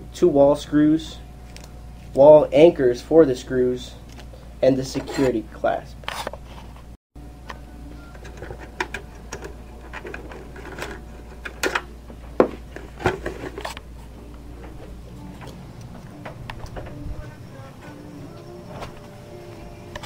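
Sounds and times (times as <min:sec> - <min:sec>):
hands handling plastic parts: 0:08.2 - 0:13.8.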